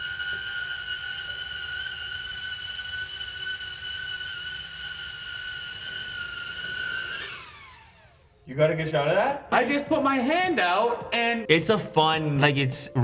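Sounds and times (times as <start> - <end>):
drone propellers whining: 0.0 - 8.5.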